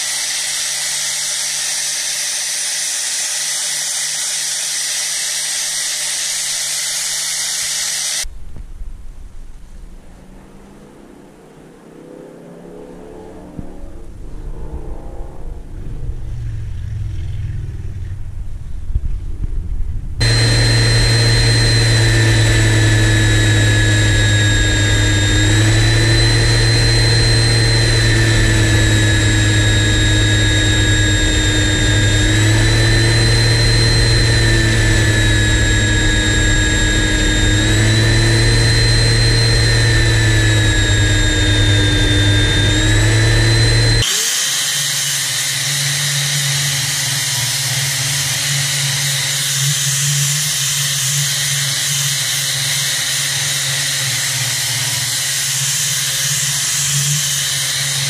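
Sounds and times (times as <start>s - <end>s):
angle grinder on metal: 0.0s - 8.3s, 20.2s - 58.0s
belt sander grinding metal: 0.0s - 8.3s, 20.2s - 58.0s.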